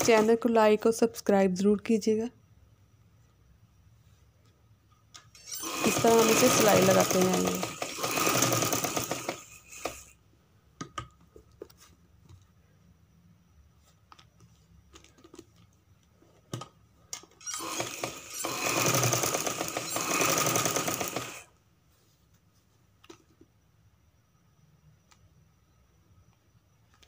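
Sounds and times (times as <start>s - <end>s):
sewing machine running: 0.0s - 0.4s, 5.4s - 10.1s, 17.5s - 21.5s.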